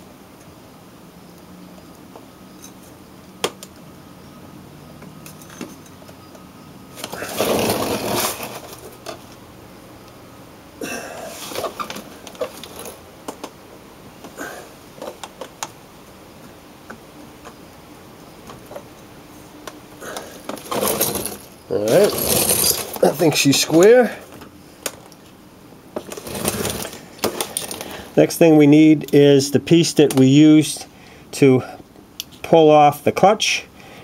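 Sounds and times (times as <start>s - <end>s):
metal clinks and clatters: 5.2s - 6.0s, 20.6s - 23.1s.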